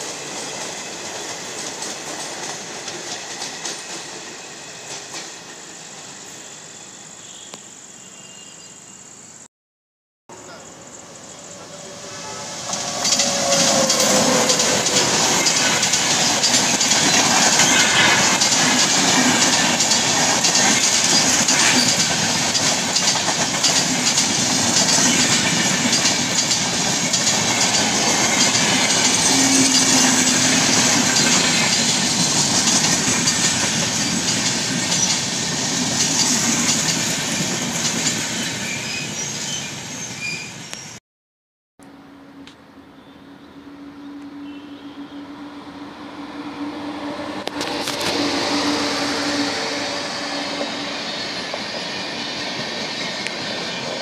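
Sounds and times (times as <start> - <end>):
train passing at speed: 0.0 - 7.3, 10.3 - 41.0, 41.8 - 54.0
wheels clacking over rail joints: 12.7 - 38.5.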